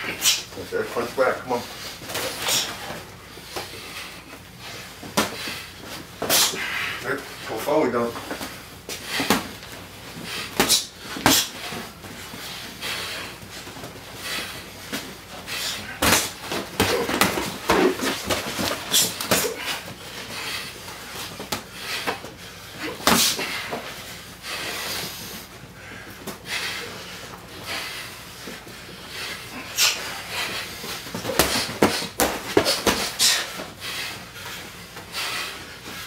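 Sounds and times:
boxers breathing: 0.0s - 36.0s
boxing gloves punch impacts: 10.4s - 11.8s, 15.8s - 19.9s, 29.8s - 33.7s.

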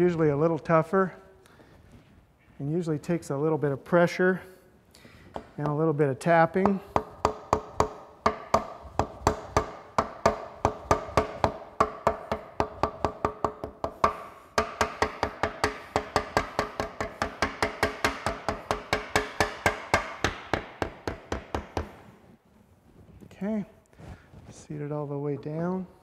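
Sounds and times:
mallet tapping on metal: 6.6s - 21.9s.

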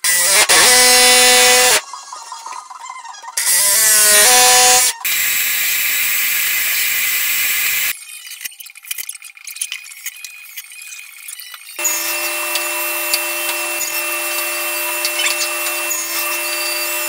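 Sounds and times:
cordless drill driving screws: 0.0s - 1.8s
drill boring with steady hiss: 0.0s - 1.8s, 3.4s - 7.9s, 11.8s - 17.0s
jigsaw cutting: 0.0s - 1.8s, 3.4s - 7.9s, 11.8s - 17.0s.

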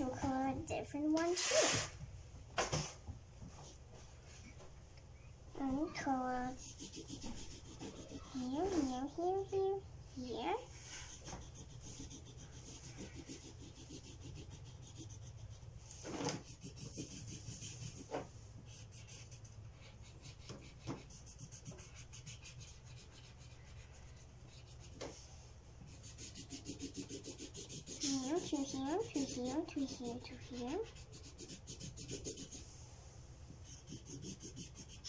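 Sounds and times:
felt-tip marker scribbling on paper: 5.7s - 15.7s, 16.4s - 18.1s, 18.7s - 25.1s, 25.9s - 32.6s, 33.6s - 35.0s.

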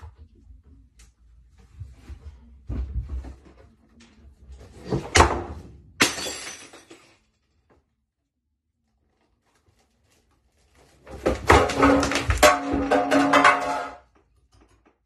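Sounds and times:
crash: 11.3s - 14.1s.

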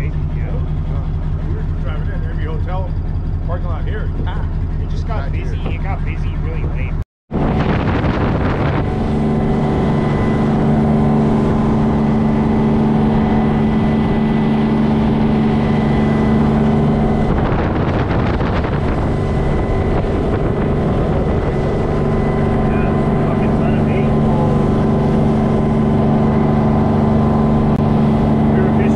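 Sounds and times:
boat engine droning: 0.0s - 28.9s
wind: 0.0s - 28.9s
water rushing: 7.4s - 28.9s.

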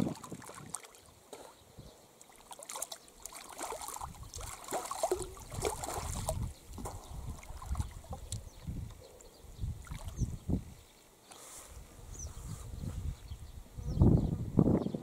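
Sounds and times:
water splashing and sloshing: 0.0s - 9.0s, 9.8s - 10.4s.

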